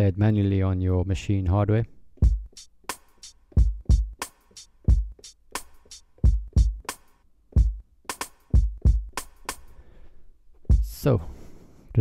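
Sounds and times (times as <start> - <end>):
kick drum hits: 2.2 - 2.5
hi-hats: 2.2 - 9.8, 10.7 - 11.2.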